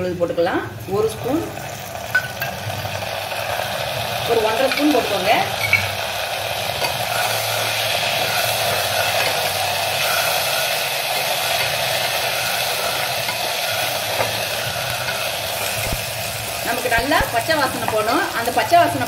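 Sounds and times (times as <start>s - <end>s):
onions sizzling in hot oil: 0.1s - 19.0s.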